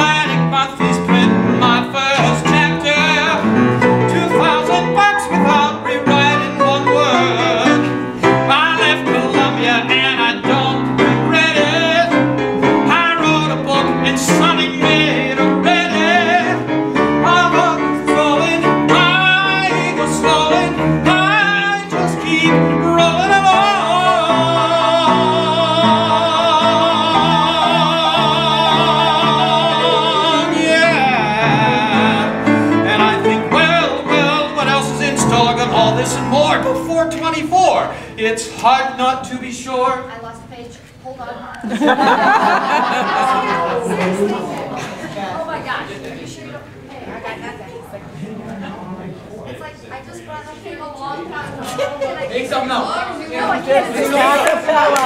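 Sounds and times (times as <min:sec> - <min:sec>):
instrumental backing music: 0:00.0 - 0:39.4
man singing with vibrato: 0:00.0 - 0:39.8.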